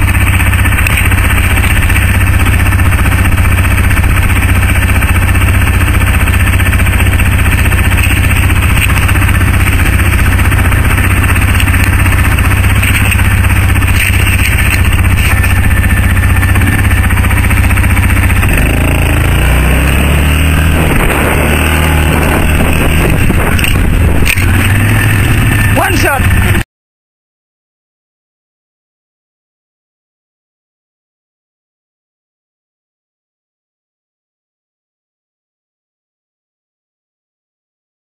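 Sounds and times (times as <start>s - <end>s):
atv engine running: 0.0s - 26.6s.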